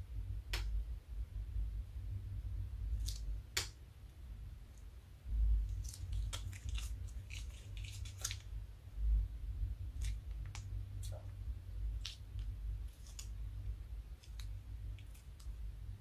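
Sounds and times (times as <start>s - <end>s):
plastic bag crinkling: 5.7s - 8.5s.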